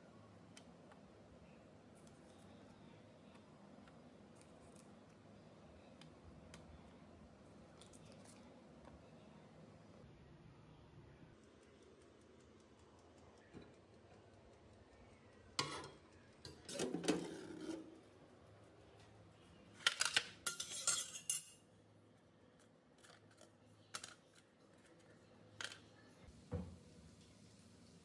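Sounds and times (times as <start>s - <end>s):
baking sheet and oven rack clanking: 15.6s - 18.0s.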